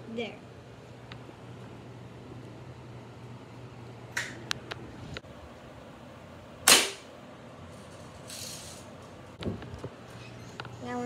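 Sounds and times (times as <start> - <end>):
air rifle shot: 6.6 - 7.1.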